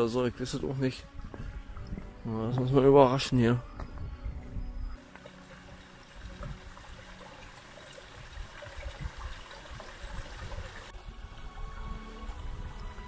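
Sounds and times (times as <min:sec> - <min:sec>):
stream water rushing: 0:05.0 - 0:13.0.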